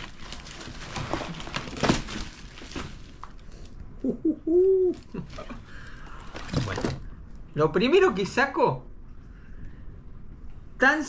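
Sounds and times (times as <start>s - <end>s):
cardboard and packing tape crackling: 0.0s - 3.7s
man saying oooh: 4.0s - 5.3s.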